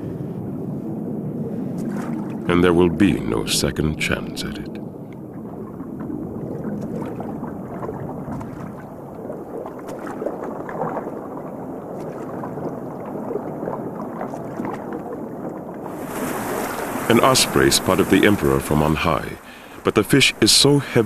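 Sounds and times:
water splashing and churning: 0.0s - 21.0s.

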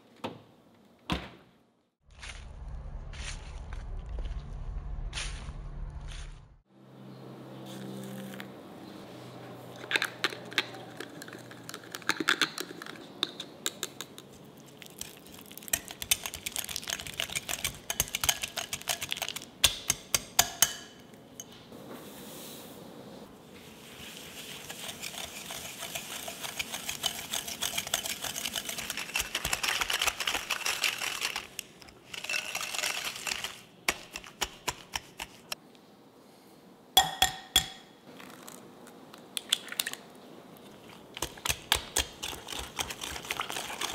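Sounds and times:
wire whisk clicking and scraping: 15.0s - 20.8s, 24.7s - 35.6s.

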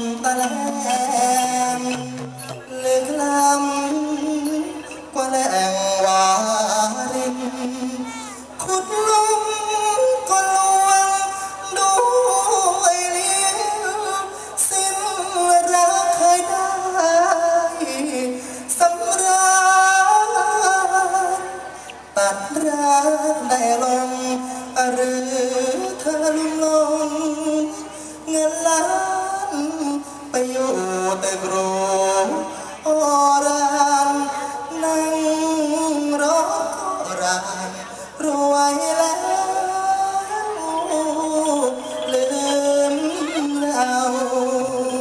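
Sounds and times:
person singing over amplifier: 0.0s - 45.0s
singer breathing: 27.9s - 28.3s.

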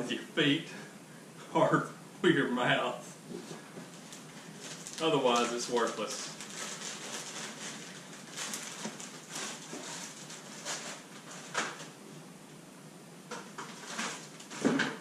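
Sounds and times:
plastic packaging crinkling: 3.9s - 11.9s, 13.6s - 14.8s.

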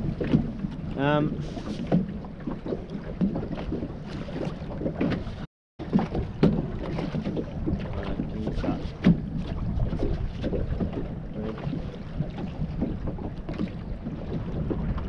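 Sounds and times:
water slapping against boat hull: 0.0s - 15.0s
wind buffeting microphone: 5.9s - 15.0s.

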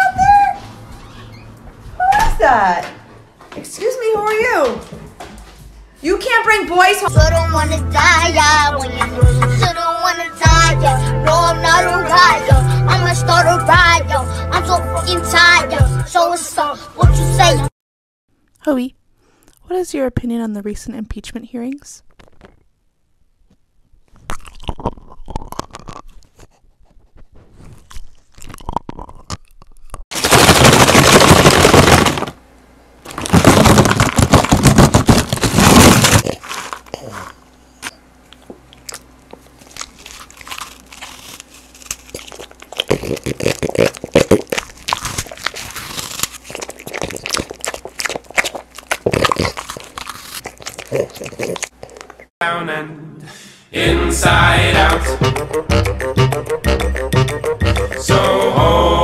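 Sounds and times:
dog chewing wet and crunchy: 24.1s - 32.3s, 33.1s - 37.5s, 38.3s - 52.3s
dog snuffling and sniffing: 39.3s - 52.3s.

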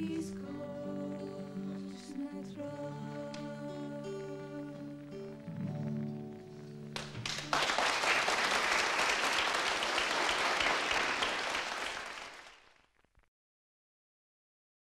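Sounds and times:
music: 0.0s - 10.2s
audience applause: 7.0s - 12.9s.

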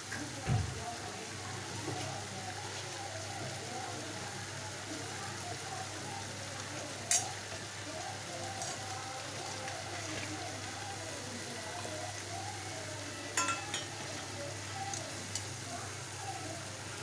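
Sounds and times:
tomatoes sizzling in oil: 0.0s - 17.0s
steel ladle clinking on pan: 13.4s - 14.0s.

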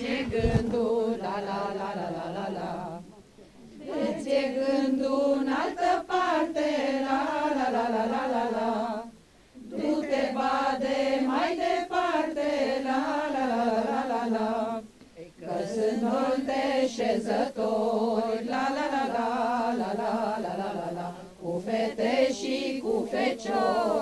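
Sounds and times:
women singing unaccompanied: 0.0s - 24.0s.

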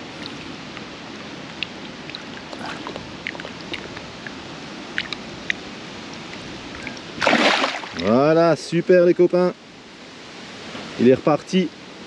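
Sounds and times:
water lapping and trickling: 0.0s - 8.4s
water drips and plops: 1.4s - 5.6s.

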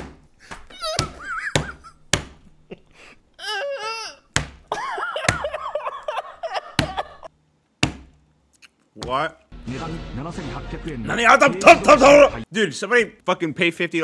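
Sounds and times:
man laughing hysterically: 0.8s - 4.0s, 4.7s - 7.3s
sharp knocks: 1.0s - 2.5s, 7.8s - 8.2s.

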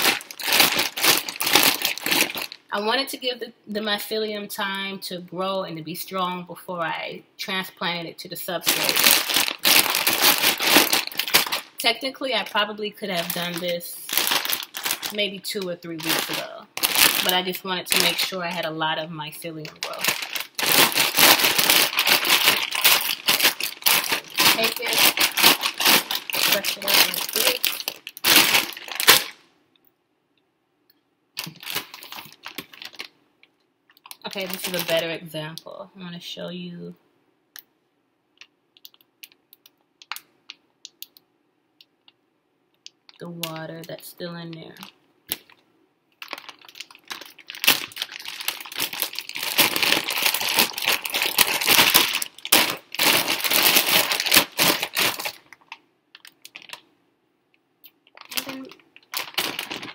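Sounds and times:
plastic bags crinkling and rustling: 0.0s - 2.7s, 8.6s - 18.7s, 19.4s - 29.4s, 31.4s - 33.1s, 34.0s - 35.2s, 46.2s - 56.8s, 58.0s - 59.9s.

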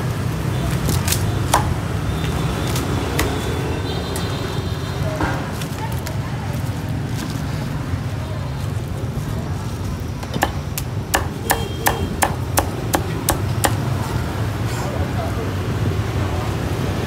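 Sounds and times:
meat cleaver chopping on a block: 10.3s - 13.8s.

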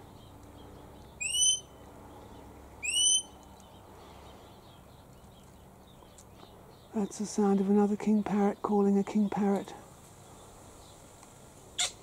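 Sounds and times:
parrot whistling call: 1.2s - 1.7s, 2.8s - 3.3s.

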